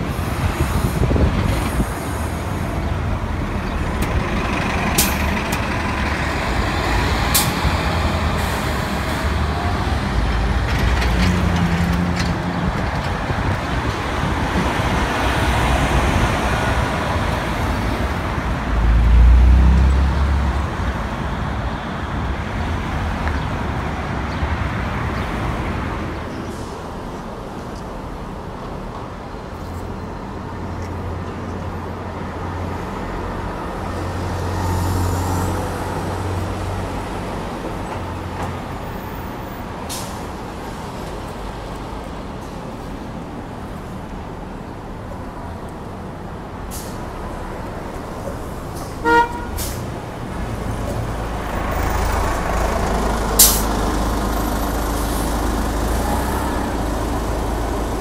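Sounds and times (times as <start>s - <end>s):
bus engine rumbling: 0.0s - 58.0s
city traffic: 0.0s - 58.0s
short horn toot: 49.0s - 49.8s.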